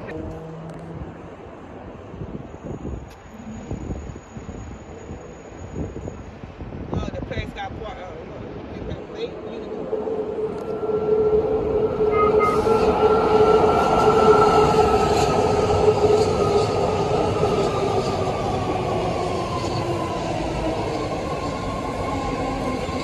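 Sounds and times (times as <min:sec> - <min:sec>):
steel wheels rumbling on rail: 0:00.0 - 0:23.0
train propulsion whining: 0:09.0 - 0:23.0.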